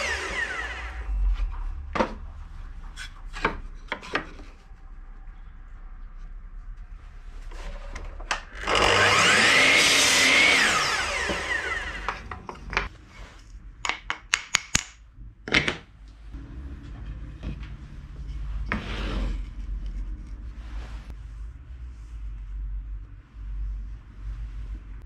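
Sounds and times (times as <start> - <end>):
power tool cutting wood: 0.0 - 1.1, 8.5 - 12.3.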